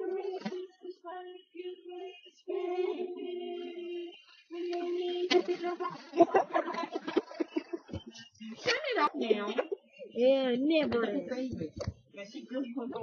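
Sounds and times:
girl singing long notes: 0.0s - 5.6s
laughter: 5.5s - 10.1s.

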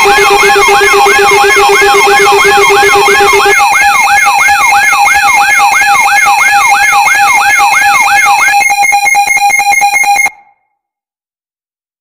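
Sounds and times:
pulsing beep tones: 0.0s - 3.8s
electronic siren wail: 0.0s - 10.4s.

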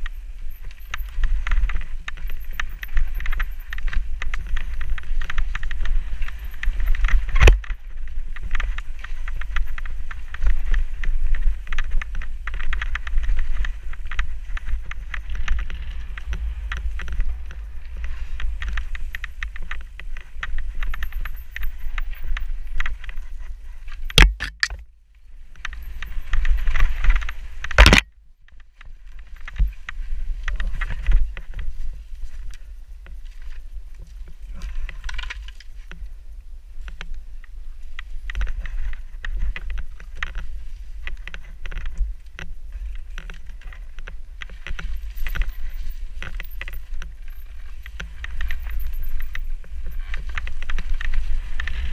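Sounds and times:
chain and bike rattling: 0.0s - 17.6s, 18.4s - 24.7s, 44.6s - 51.8s
mountain bike riding rush: 0.0s - 51.9s.

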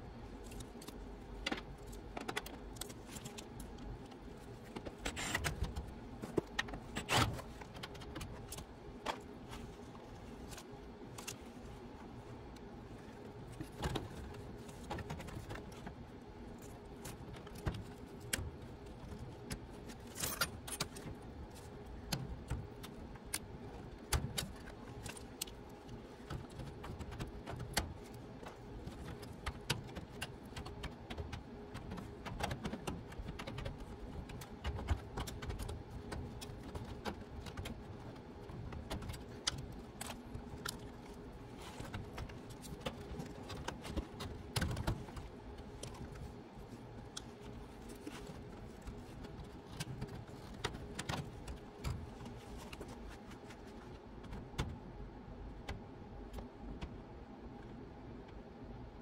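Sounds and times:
faint steady hum: 0.0s - 59.0s.

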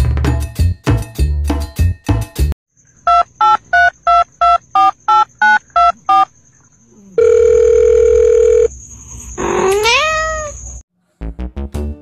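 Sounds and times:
keypad dialing beeps: 3.1s - 6.3s.

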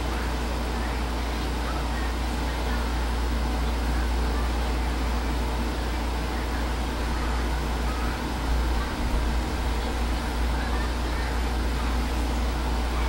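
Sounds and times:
fan motor hum and hiss: 0.0s - 13.0s.

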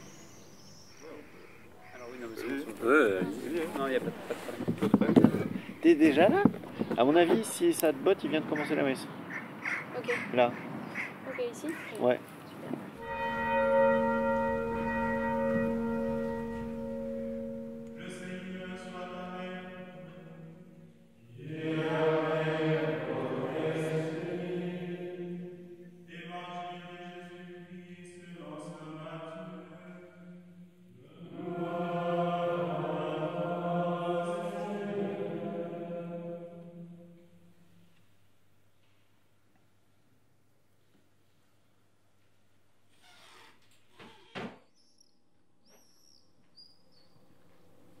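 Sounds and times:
group chanting: 13.2s - 37.1s.

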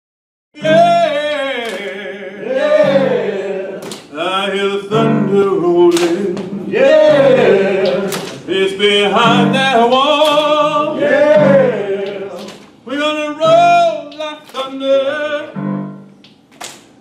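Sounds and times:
male chorus singing blues: 0.6s - 15.6s
lead voice singing: 0.6s - 15.7s.

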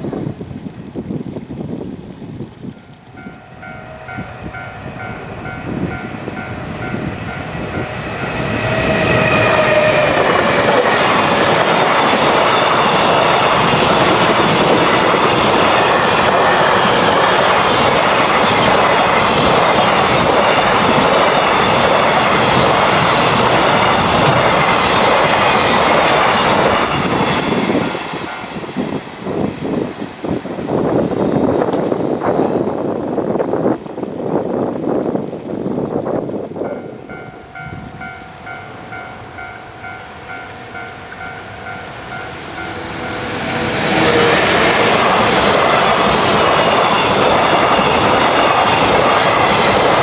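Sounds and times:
freight train rumbling past: 0.0s - 50.0s
level-crossing warning bell: 2.8s - 9.8s, 28.1s - 28.7s, 36.6s - 45.0s.

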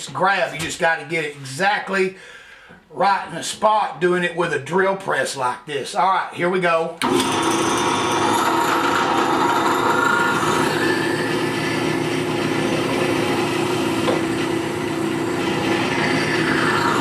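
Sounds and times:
drill press motor hum: 7.0s - 17.0s
reamer cutting metal: 7.0s - 17.0s.

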